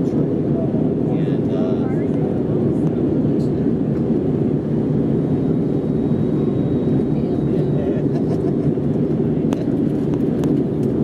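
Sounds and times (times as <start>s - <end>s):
airplane cabin engine and airflow: 0.0s - 11.0s.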